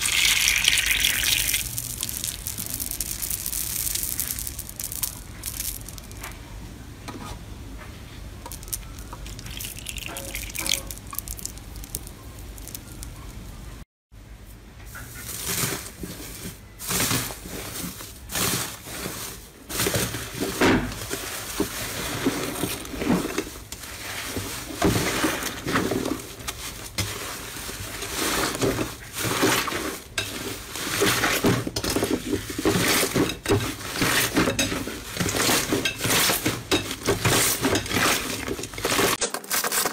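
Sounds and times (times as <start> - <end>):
slime popping and crackling: 0.0 - 6.2, 8.5 - 13.5
slime crunching: 0.1 - 6.2, 8.5 - 13.5.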